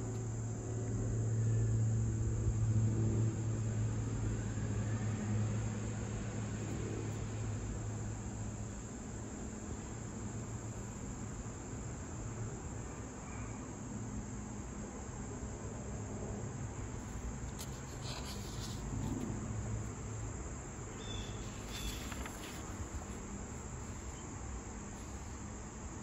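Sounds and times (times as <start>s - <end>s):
insects trilling: 0.0s - 26.0s
low steady hum: 14.2s - 26.0s
faint short sounds: 21.0s - 24.3s.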